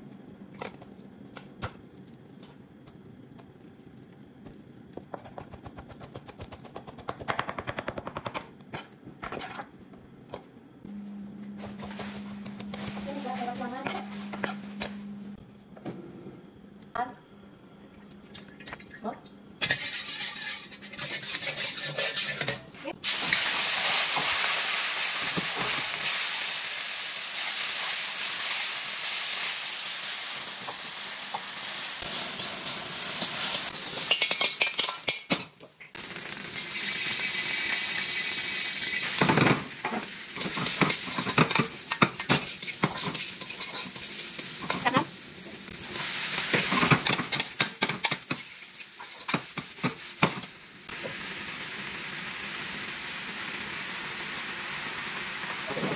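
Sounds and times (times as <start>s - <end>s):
metal utensils scraping wok: 19.6s - 23.5s, 32.1s - 35.4s, 38.8s - 45.2s, 46.0s - 50.5s
food sizzling in wok: 19.6s - 55.9s.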